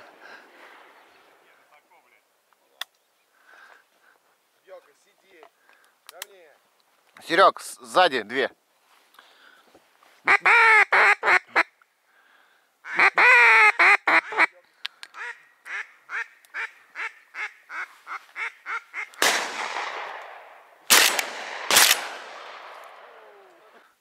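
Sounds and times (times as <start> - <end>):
duck quacking: 10.2 - 11.7, 12.8 - 14.6, 15.2 - 19.2
shotgun shots: 19.2 - 23.1.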